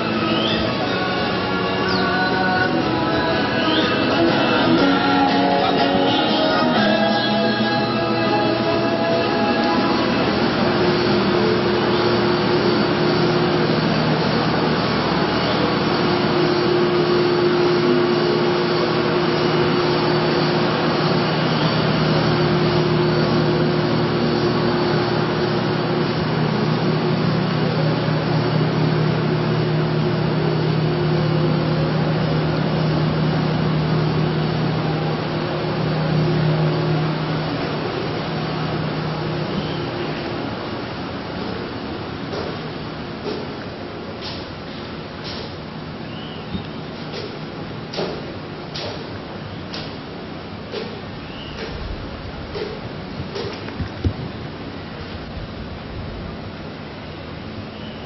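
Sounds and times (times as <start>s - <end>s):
high machine tone: 0.0s - 40.8s
machine whooshing hum: 0.0s - 58.0s.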